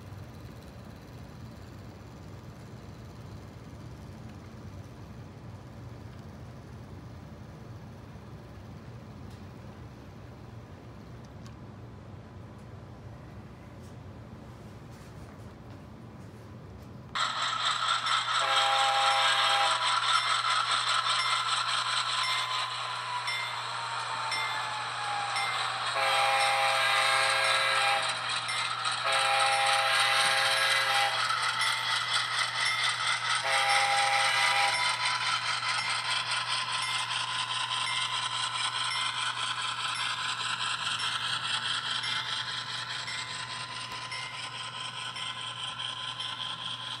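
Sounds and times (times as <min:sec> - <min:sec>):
passing train rattling: 0:17.1 - 0:47.0
train horn blasts: 0:18.4 - 0:19.8, 0:25.9 - 0:28.1, 0:29.0 - 0:31.2, 0:33.4 - 0:34.8.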